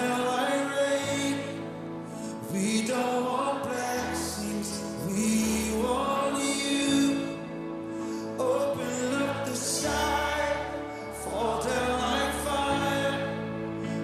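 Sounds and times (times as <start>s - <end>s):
keyboard playing: 0.0s - 14.0s
person singing: 0.0s - 14.0s.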